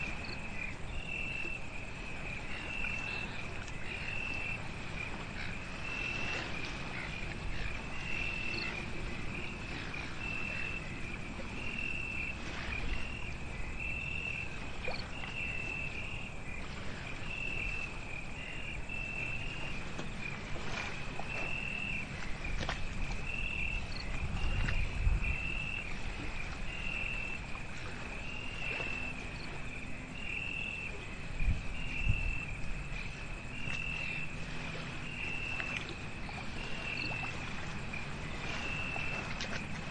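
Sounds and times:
insect chirping: 0:00.0 - 0:39.7.

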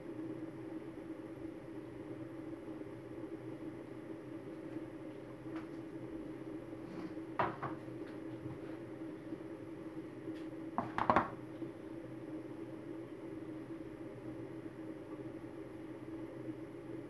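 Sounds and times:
steady low hum: 0:00.0 - 0:17.0
kitchenware knocking on table: 0:07.4 - 0:07.8, 0:10.8 - 0:11.4.

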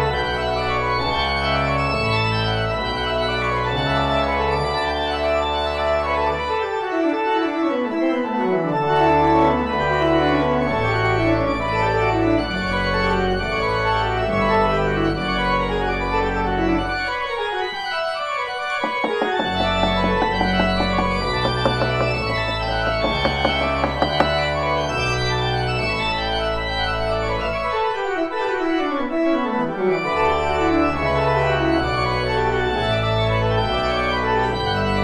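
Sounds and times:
pipe organ music: 0:00.0 - 0:35.0
light taps: 0:18.8 - 0:24.5.

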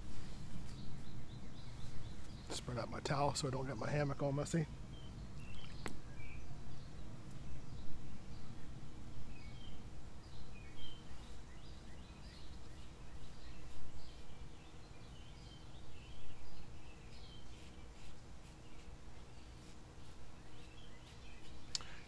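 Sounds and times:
birds chirping: 0:00.0 - 0:22.0
razor scraping stubble: 0:12.4 - 0:14.5, 0:16.5 - 0:21.9.

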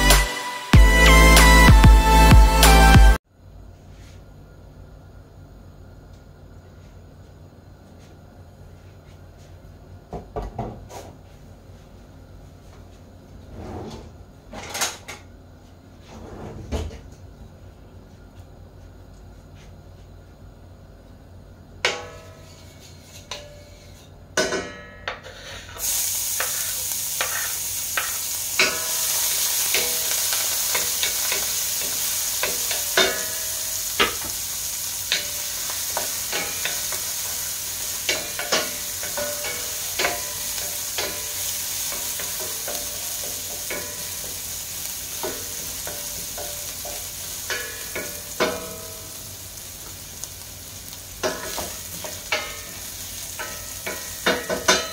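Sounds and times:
garlic sizzling in oil: 0:25.4 - 0:54.9.

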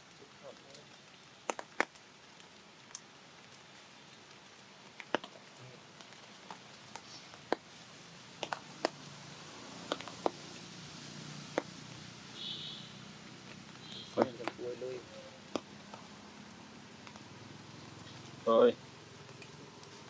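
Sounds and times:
sharp ticks and taps: 0:01.4 - 0:02.0, 0:08.4 - 0:09.0, 0:15.5 - 0:16.0.

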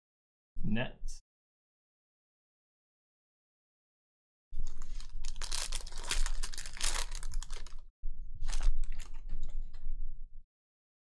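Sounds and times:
foil wrapper crinkling and tearing: 0:04.6 - 0:09.2.

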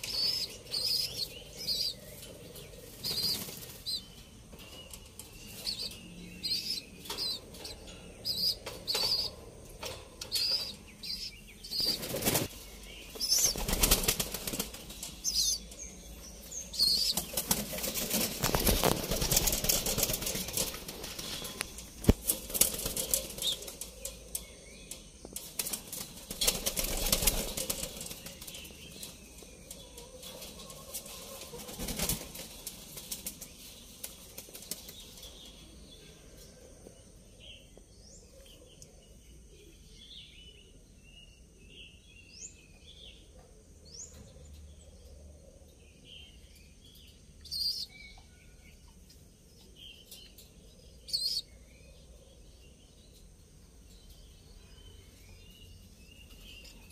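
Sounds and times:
pigeons flapping wings: 0:11.8 - 0:12.5, 0:13.2 - 0:15.0, 0:17.0 - 0:23.8, 0:25.6 - 0:28.6, 0:31.5 - 0:35.0.

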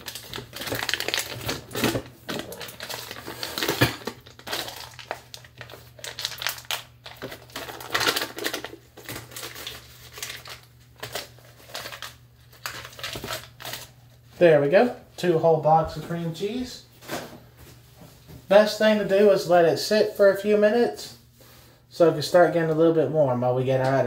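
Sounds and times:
foil wrapper crinkling: 0:00.0 - 0:14.3.

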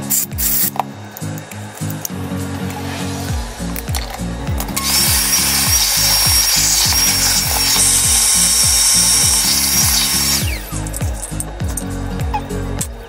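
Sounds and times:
background music with beat: 0:00.0 - 0:13.0
cordless drill whining: 0:02.8 - 0:11.5.

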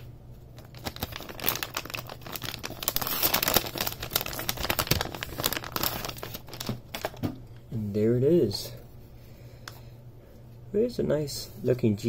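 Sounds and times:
plastic bag crinkling: 0:00.5 - 0:07.4.

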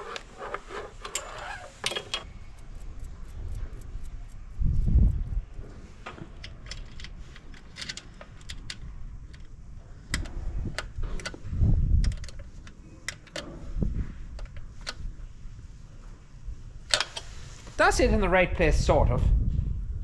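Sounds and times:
low rumbles: 0:02.3 - 0:07.0
metallic clicks and rattles of cable: 0:06.1 - 0:13.6.

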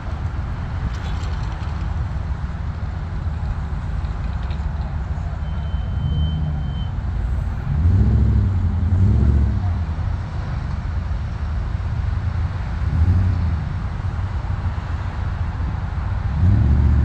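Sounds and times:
road vehicles passing: 0:00.0 - 0:17.0.

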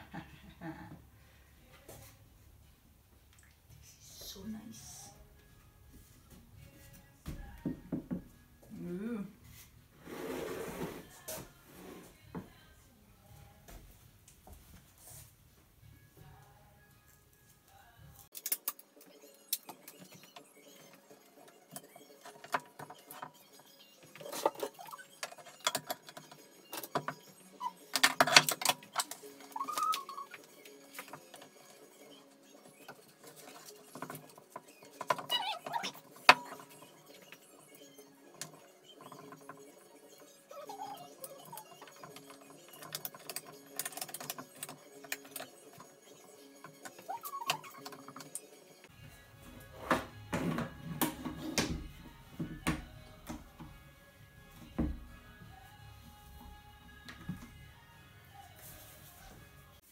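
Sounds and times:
quiet background music: 0:00.0 - 0:59.9
tools clicking and knocking: 0:18.3 - 0:20.4, 0:24.1 - 0:31.6, 0:41.2 - 0:48.5.

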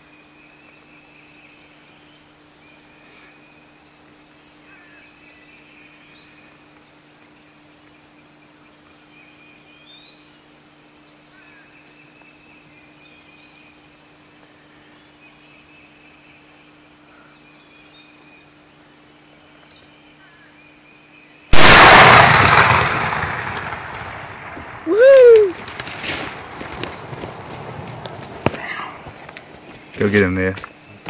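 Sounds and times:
shotgun shot with echo: 0:21.6 - 0:24.8.

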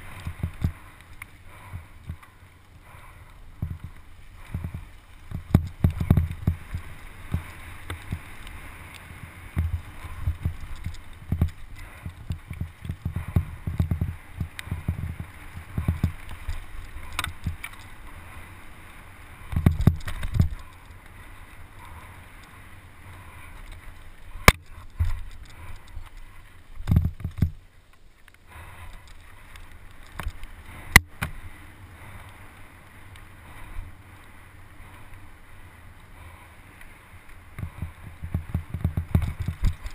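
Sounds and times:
bike tyre and wind rush: 0:00.0 - 0:39.9
bike thumps and rattles over bumps: 0:03.6 - 0:08.3, 0:09.5 - 0:17.9, 0:19.5 - 0:20.8, 0:26.8 - 0:27.6, 0:37.6 - 0:39.9.

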